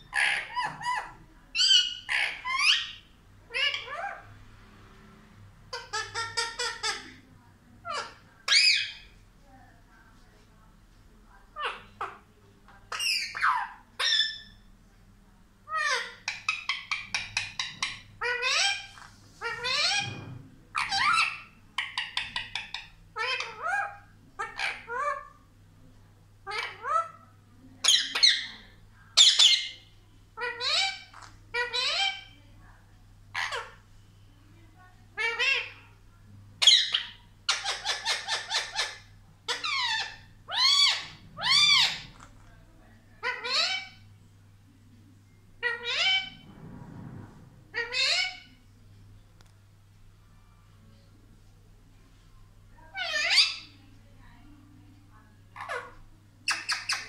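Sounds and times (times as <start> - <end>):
parrot squawking: 0.0 - 4.3, 5.7 - 7.2, 7.8 - 9.2, 11.5 - 12.3, 12.9 - 14.7, 15.6 - 25.4, 26.4 - 27.2, 27.8 - 28.6, 29.2 - 29.8, 30.4 - 32.4, 35.2 - 36.0, 36.6 - 42.5, 43.2 - 44.1, 45.6 - 46.4, 47.7 - 48.6, 52.9 - 53.8, 55.5 - 57.0.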